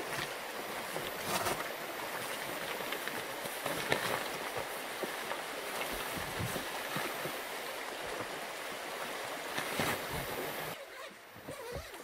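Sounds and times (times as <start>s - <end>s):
tent fabric rustling: 0.0s - 4.7s, 9.5s - 12.0s
stream rushing: 0.0s - 11.6s.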